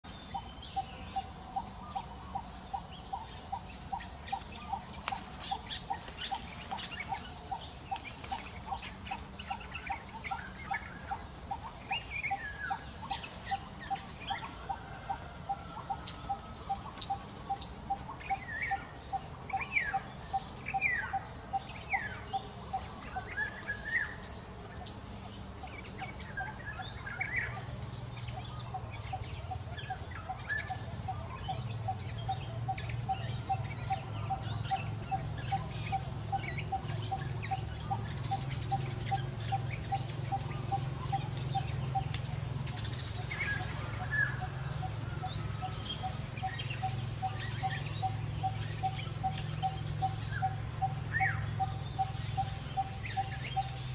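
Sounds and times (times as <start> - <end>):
bird chirps and falling calls: 25.7 - 53.9.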